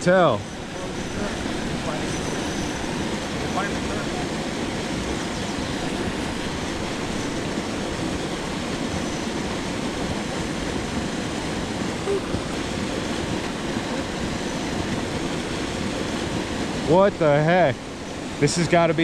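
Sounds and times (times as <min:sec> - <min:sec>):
water rushing from spillway: 0:00.0 - 0:19.0.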